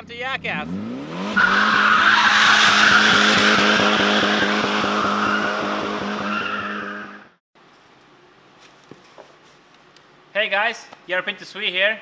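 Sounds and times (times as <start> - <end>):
car engine revving high: 0.5 - 7.4
tyres squealing: 1.4 - 7.2.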